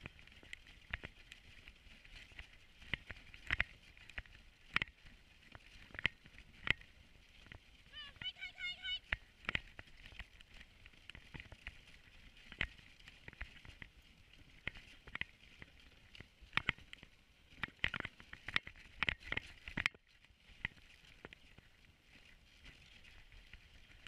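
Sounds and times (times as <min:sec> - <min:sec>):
sled clicking and knocking: 0:00.0 - 0:13.9, 0:17.6 - 0:20.0
sled runners rumbling on snow: 0:00.0 - 0:24.0.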